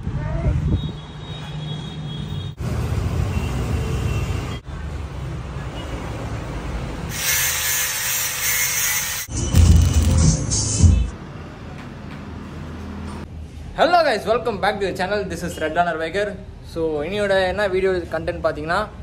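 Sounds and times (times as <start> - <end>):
angle grinder grinding metal: 7.1 - 9.3.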